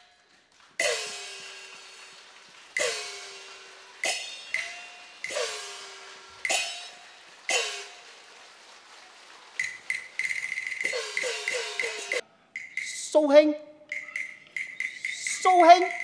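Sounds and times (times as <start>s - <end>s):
cymbals: 0.8s - 8.6s, 9.6s - 13.2s, 13.9s - 16.0s.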